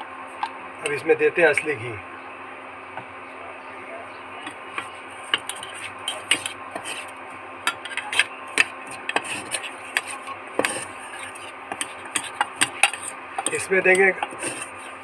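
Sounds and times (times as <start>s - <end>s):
spoon stirring flour in a pot: 4.4s - 15.0s.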